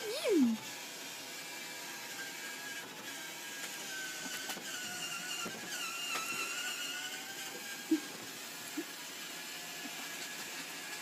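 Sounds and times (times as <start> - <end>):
electric motor whining: 0.0 - 11.0.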